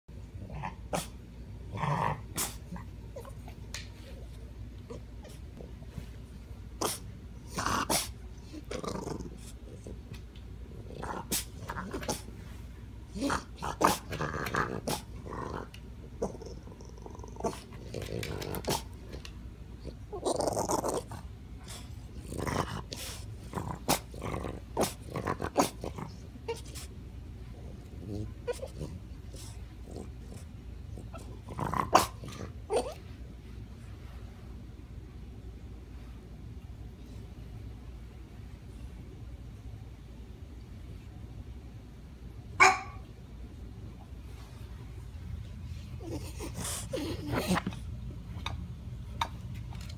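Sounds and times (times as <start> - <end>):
claws clicking and scratching chair: 17.3 - 19.4
dog whining and grumbling: 24.8 - 26.9, 27.9 - 30.1, 30.9 - 33.1, 45.9 - 47.9.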